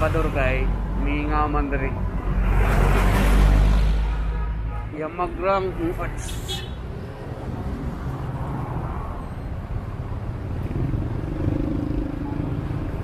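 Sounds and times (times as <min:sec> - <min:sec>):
traffic engine rumble: 0:00.0 - 0:13.0.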